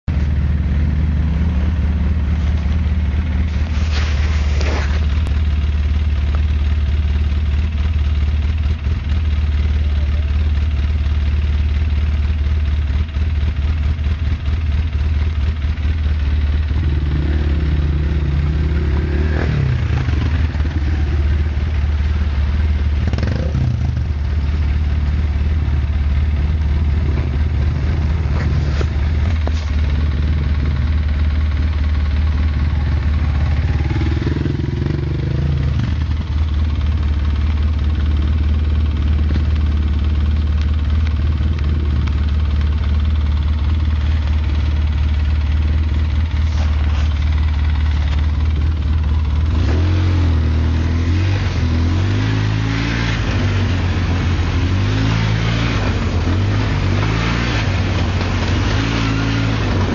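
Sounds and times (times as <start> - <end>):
off-road vehicle engines droning: 0.0 - 59.9.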